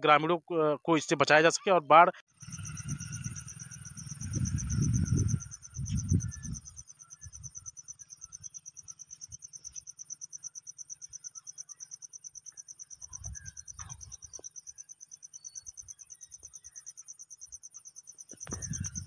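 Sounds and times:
insects trilling: 2.3 - 19.0
low rumble on microphone: 2.4 - 6.7, 18.5 - 19.0.

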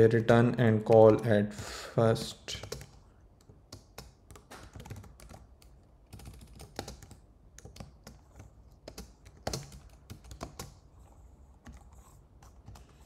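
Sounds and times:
typing on keyboard: 2.5 - 10.8, 11.6 - 13.0.

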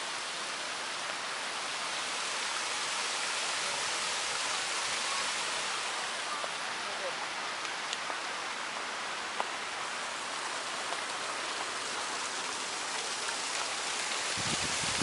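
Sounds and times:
water hissing: 0.0 - 6.6.

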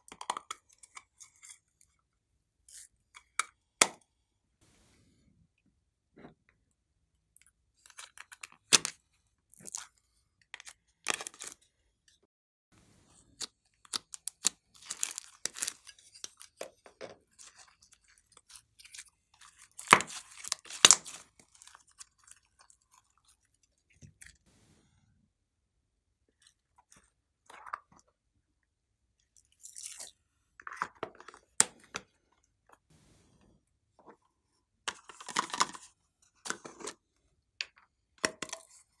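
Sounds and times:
slime crackling and popping: 19.7 - 21.6.

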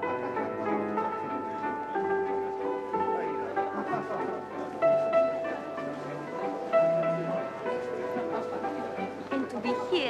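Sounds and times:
orchestral strings music: 0.0 - 10.0.

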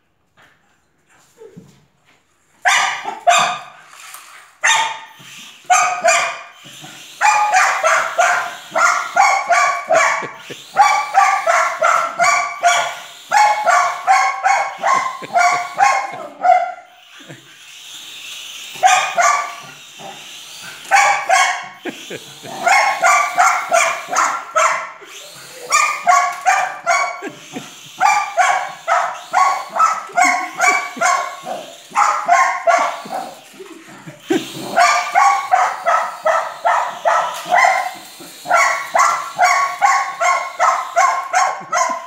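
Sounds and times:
small dog barking: 2.6 - 3.7, 4.6 - 5.0, 5.7 - 6.4, 7.2 - 16.9, 18.8 - 19.6, 20.9 - 21.7, 22.6 - 24.9, 25.7 - 27.4, 28.0 - 33.3, 34.8 - 42.0.

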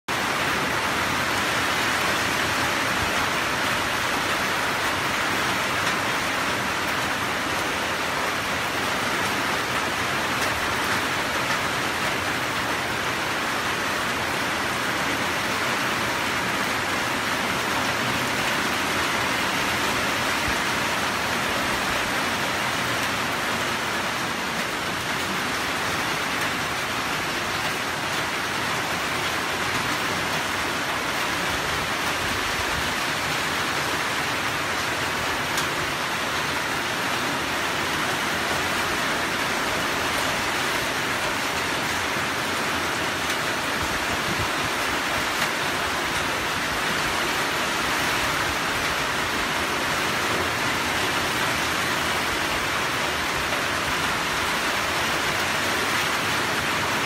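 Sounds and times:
steady rain falling: 0.1 - 57.0.

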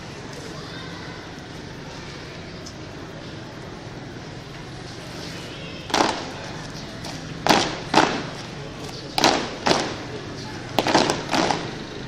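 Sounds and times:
unison foot stamps on paving: 5.8 - 11.8.

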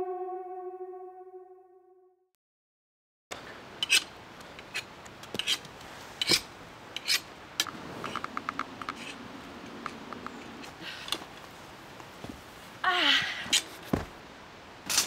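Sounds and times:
low hum: 0.0 - 2.0.

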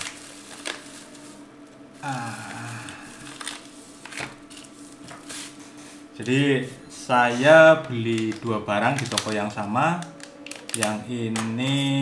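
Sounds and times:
bubble wrap rustling and crinkling: 0.0 - 12.0
person murmuring: 2.0 - 3.4.

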